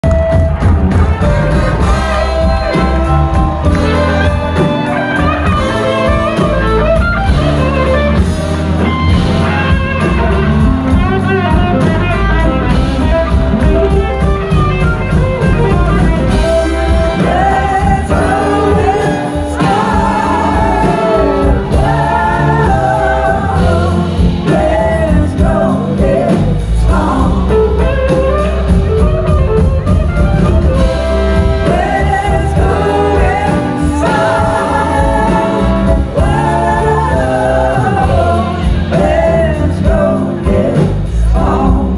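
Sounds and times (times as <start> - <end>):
live blues-rock band: 0.0 - 41.9
woman singing: 15.6 - 28.5, 31.4 - 41.9.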